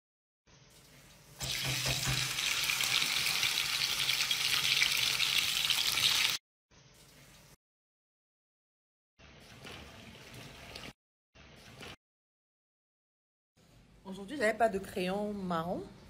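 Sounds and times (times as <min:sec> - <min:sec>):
meat sizzling in hot oil: 0:01.4 - 0:06.4.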